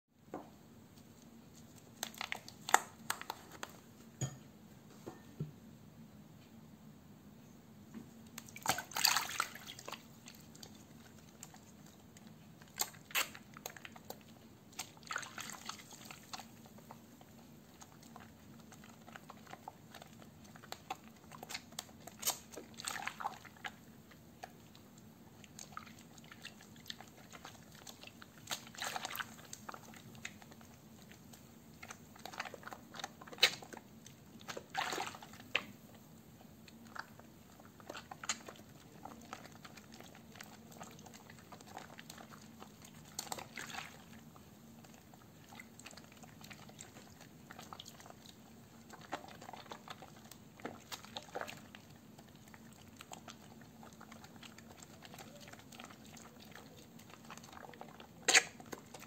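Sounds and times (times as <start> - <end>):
hands squishing wet soap: 0.8 - 4.0, 8.0 - 59.0
small water splashes: 8.4 - 11.5, 14.7 - 16.5, 19.0 - 23.8, 25.5 - 30.4, 34.4 - 35.8, 37.0 - 44.3, 45.4 - 59.0.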